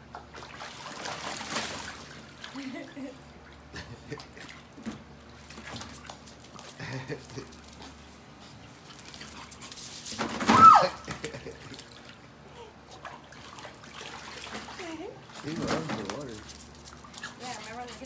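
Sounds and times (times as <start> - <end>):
puppies splashing in water: 0.0 - 18.0
puppy cry falling in pitch: 10.5 - 11.1.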